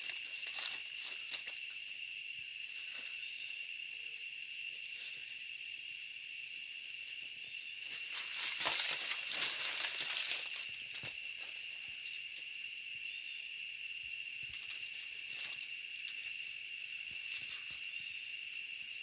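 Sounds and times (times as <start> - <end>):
rustling and crackling: 0.0 - 1.8, 7.8 - 12.5
insects droning: 0.0 - 19.0.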